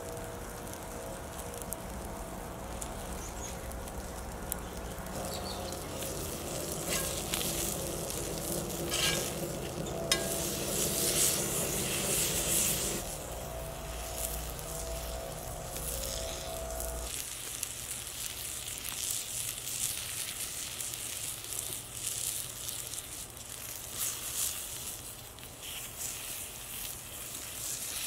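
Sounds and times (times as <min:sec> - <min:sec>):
meat sizzling in a skillet: 0:00.0 - 0:28.0
spatula scraping: 0:05.1 - 0:17.1.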